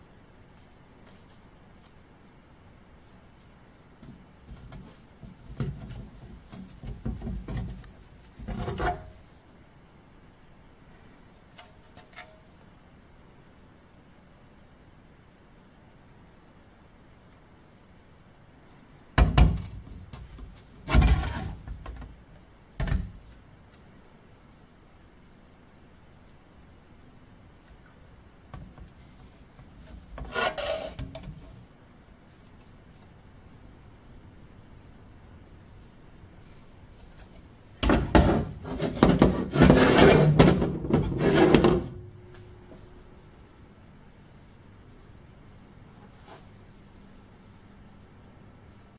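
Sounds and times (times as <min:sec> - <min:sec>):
faint low hum: 0:00.0 - 0:48.9
steel helmet scraping on concrete: 0:30.2 - 0:31.1, 0:38.2 - 0:41.9.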